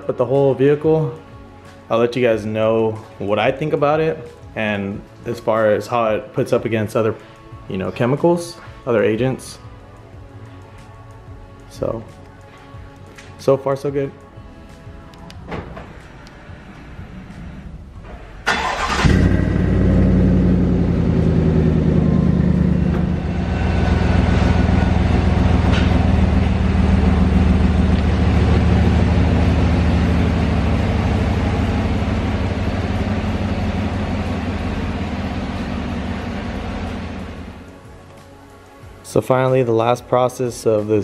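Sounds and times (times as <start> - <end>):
pickup engine starting and running: 15.1 - 37.8.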